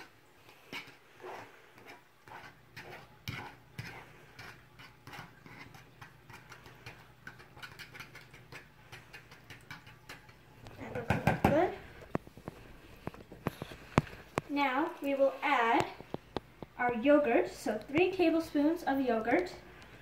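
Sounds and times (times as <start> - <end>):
fork mashing food in plastic bowl: 0.0 - 14.5.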